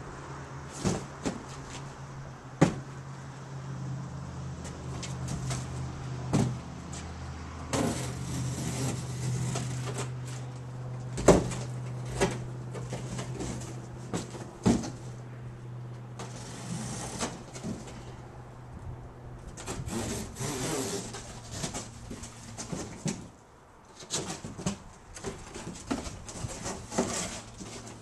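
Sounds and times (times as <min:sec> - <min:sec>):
cardboard knocks and thumps: 0:02.6 - 0:02.9, 0:06.3 - 0:06.6
cardboard scraping and sliding: 0:07.7 - 0:10.5, 0:11.2 - 0:15.2, 0:16.2 - 0:18.1, 0:19.6 - 0:23.3, 0:24.0 - 0:28.0.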